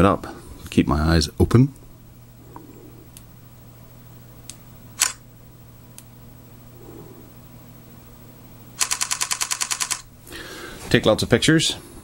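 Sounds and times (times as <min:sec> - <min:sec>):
steady low hum: 0:00.0 - 0:12.0
sharp click: 0:04.5 - 0:05.2.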